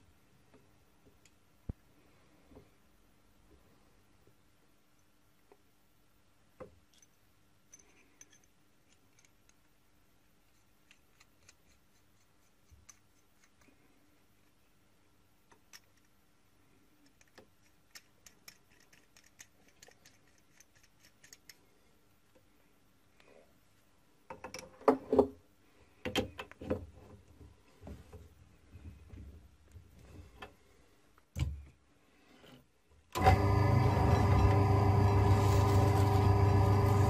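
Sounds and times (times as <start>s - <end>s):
small metal parts clicking: 6.9s - 9.7s, 15.5s - 16.2s, 17.0s - 21.6s.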